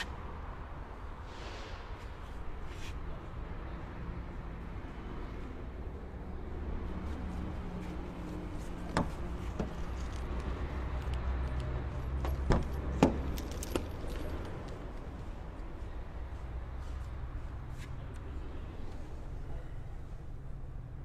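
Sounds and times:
car door clicks and knocks: 12.2s - 13.9s.

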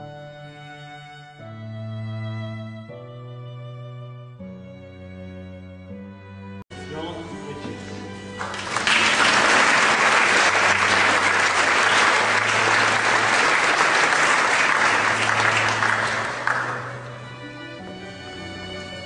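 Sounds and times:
faint music: 6.7s - 19.0s
audience applauding: 8.2s - 17.4s.

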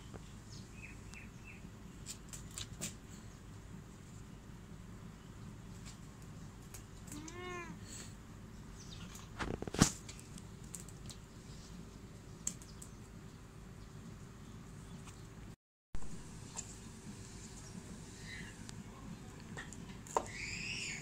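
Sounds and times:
kitten meowing: 7.1s - 7.8s.

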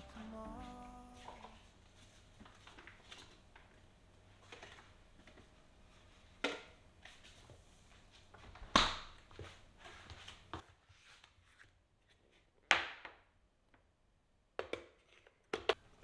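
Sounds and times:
food containers rustling and clicking: 1.2s - 7.6s.

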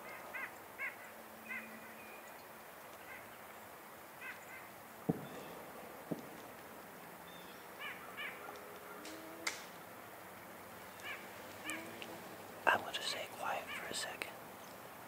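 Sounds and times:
dull thumps: 5.1s - 5.5s.

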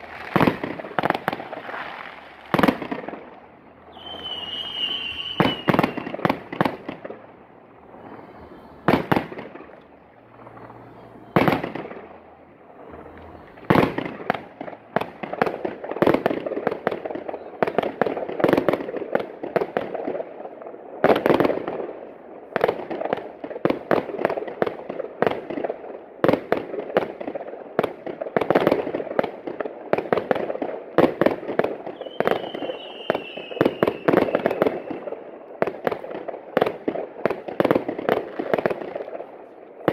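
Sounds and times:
fireworks bangs and crackle: 0.0s - 39.9s
firework whistle falling in pitch: 3.9s - 6.2s, 32.0s - 35.1s.

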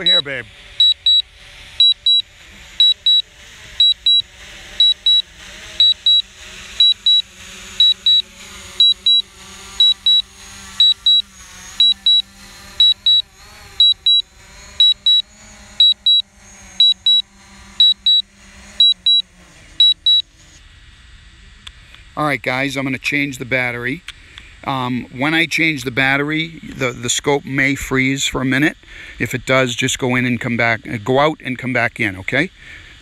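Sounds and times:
remote controller double beeps: 0.0s - 1.2s, 1.8s - 2.2s, 2.8s - 3.2s, 3.8s - 4.2s, 4.8s - 5.2s, 5.8s - 7.2s, 7.8s - 9.2s, 9.8s - 10.2s, 10.8s - 11.2s, 11.8s - 13.2s, 13.8s - 14.2s, 14.8s - 15.2s, 15.8s - 16.2s, 16.8s - 17.2s, 17.8s - 18.2s, 18.8s - 19.2s, 19.8s - 20.2s.

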